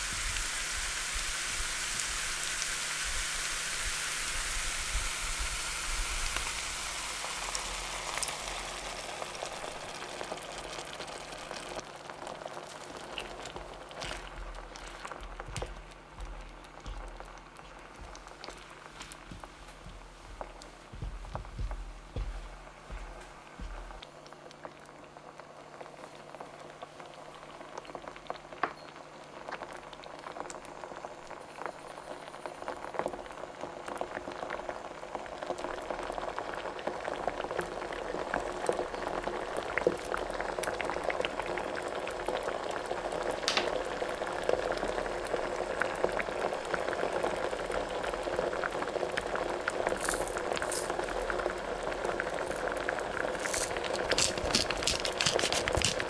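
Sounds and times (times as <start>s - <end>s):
food bubbling and sizzling: 0.0s - 56.0s
small pops and crackles: 9.6s - 28.8s, 49.9s - 56.0s.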